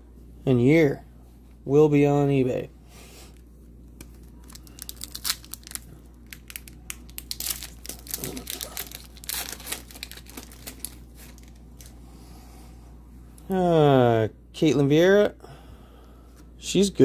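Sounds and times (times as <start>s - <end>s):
plastic packaging crinkling: 3.9s - 12.0s.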